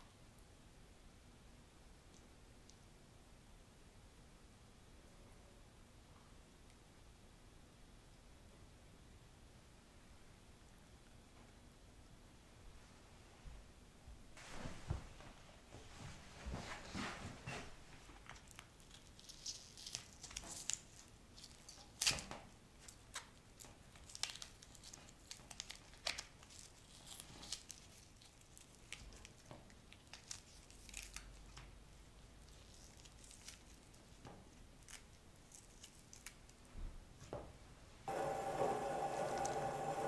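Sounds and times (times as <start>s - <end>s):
papery skin snapping and tearing: 18.2s - 31.8s, 32.4s - 36.6s
plant bulb being pulled apart: 18.5s - 22.3s.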